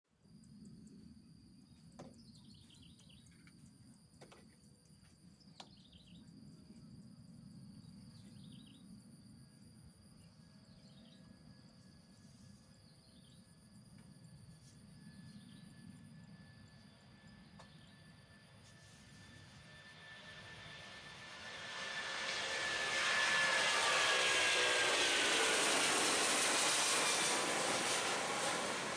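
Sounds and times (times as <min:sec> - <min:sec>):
insects droning: 0:00.1 - 0:28.9.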